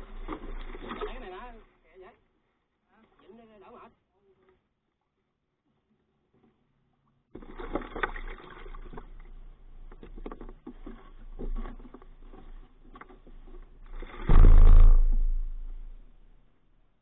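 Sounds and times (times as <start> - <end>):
handling knocks and scrapes: 9.9 - 16.2
low rumble: 14.0 - 16.4.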